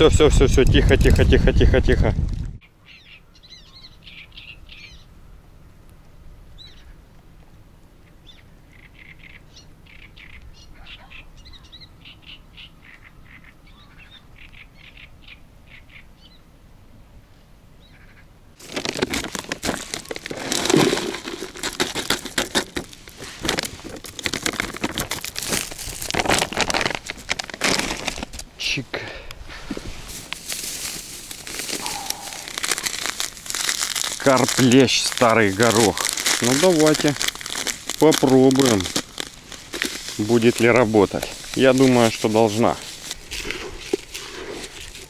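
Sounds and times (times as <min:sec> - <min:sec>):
small birds chirping: 0:02.6 - 0:05.1, 0:08.0 - 0:16.5
plastic bag crinkling: 0:18.6 - 0:28.5, 0:29.6 - 0:45.0.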